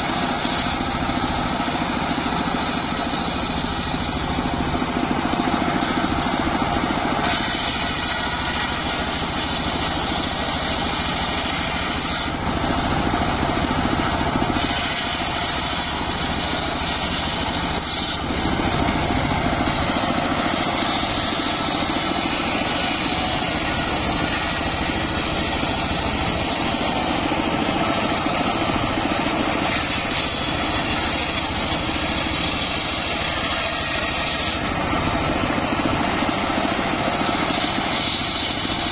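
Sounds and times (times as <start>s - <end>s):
saw blade cutting wood hiss: 0.0s - 12.4s, 13.8s - 38.9s
table saw drone: 14.2s - 38.9s.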